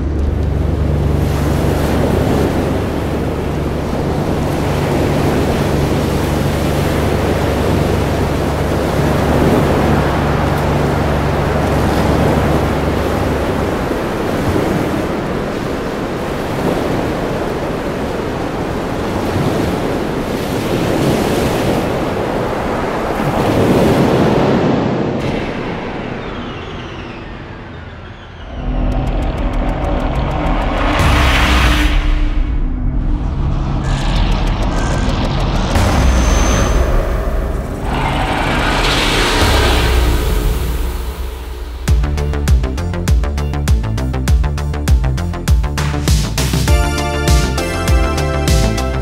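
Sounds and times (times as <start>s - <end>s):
steady low drone: 0.0s - 14.5s, 25.2s - 49.0s
loud rushing noise: 23.0s - 43.1s.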